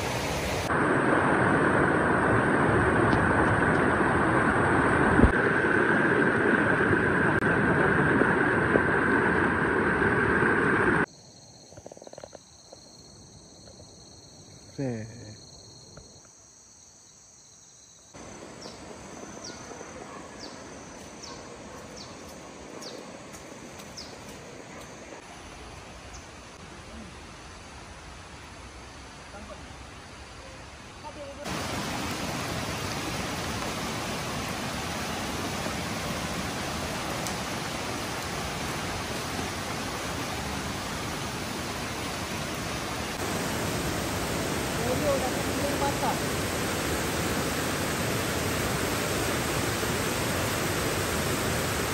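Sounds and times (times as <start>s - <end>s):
broad hiss: 0.0s - 0.8s, 31.2s - 51.9s
river rushing over rocks: 31.5s - 51.9s.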